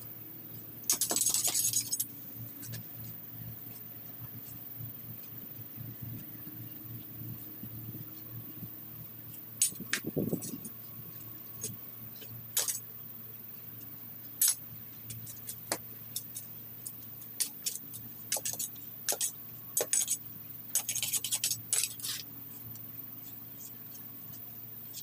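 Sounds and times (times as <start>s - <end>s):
low steady hum: 0.0s - 25.0s
machete scraping and chopping weeds: 17.4s - 22.3s.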